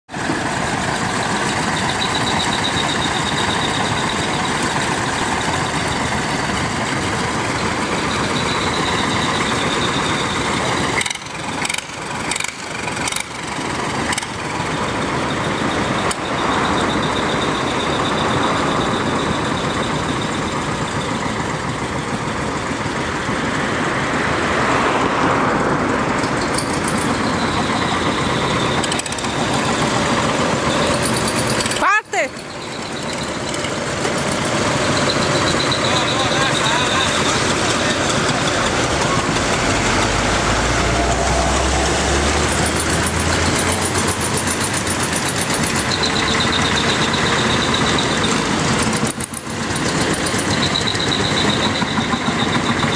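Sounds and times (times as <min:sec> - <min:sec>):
tractor engine running: 0:00.0 - 0:52.9.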